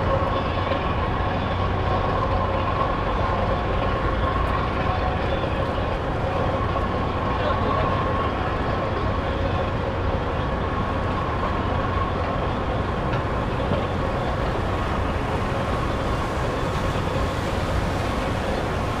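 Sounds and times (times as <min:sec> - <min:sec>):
distant traffic noise: 0:00.0 - 0:19.0.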